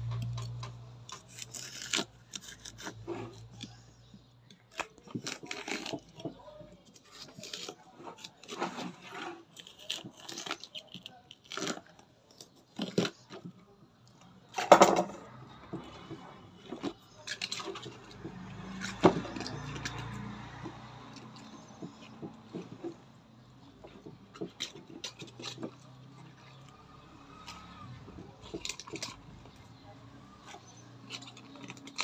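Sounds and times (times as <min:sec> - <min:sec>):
knife cutting raw cabbage: 0:00.1 - 0:13.5, 0:15.7 - 0:32.0.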